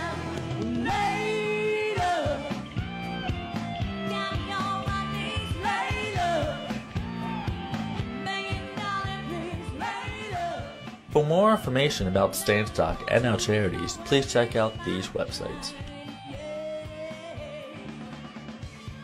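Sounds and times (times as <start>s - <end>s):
rock song with lead singer: 0.0s - 11.1s.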